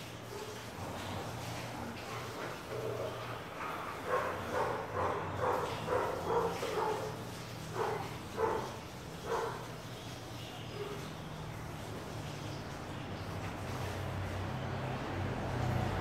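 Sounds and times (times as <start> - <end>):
dog barking: 2.7 - 9.7.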